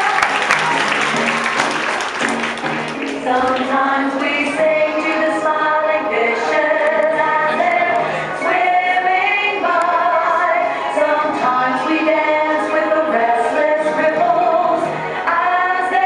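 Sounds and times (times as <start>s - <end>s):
choir singing held notes: 3.2s - 16.0s.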